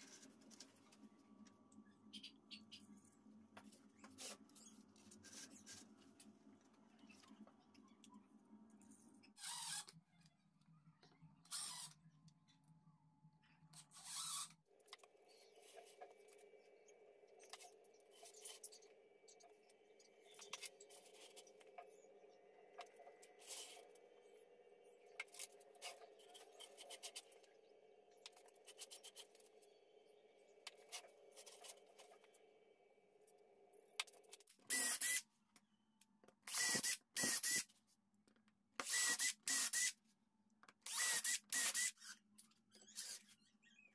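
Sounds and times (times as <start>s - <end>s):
cordless drill drilling into metal: 34.7s - 35.2s, 36.5s - 37.6s, 38.8s - 39.9s, 40.9s - 42.1s.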